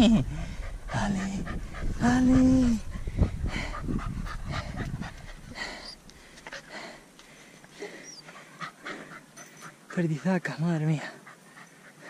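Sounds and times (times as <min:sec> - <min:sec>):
dog panting: 0:00.1 - 0:12.0.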